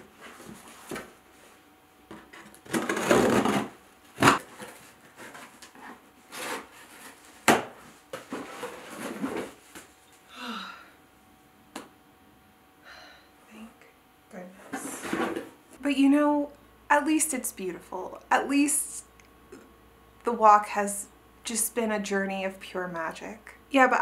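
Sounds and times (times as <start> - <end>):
cardboard rubbing and scraping: 2.1 - 7.5.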